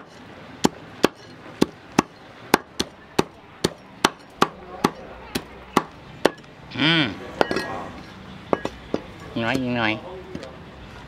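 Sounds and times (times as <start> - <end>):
cleaver chopping on wooden block: 0.0 - 6.4.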